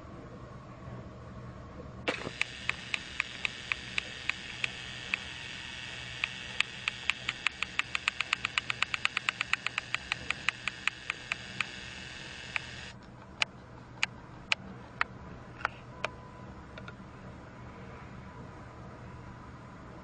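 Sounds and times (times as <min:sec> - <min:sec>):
toy train motor whir: 0:02.1 - 0:13.0
toy train rhythmic clicks: 0:02.1 - 0:14.6.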